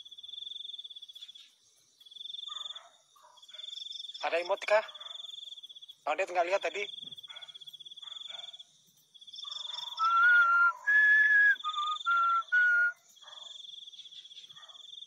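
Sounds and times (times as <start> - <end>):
crickets trilling: 0.0 - 15.0
person whistling: 10.0 - 13.0.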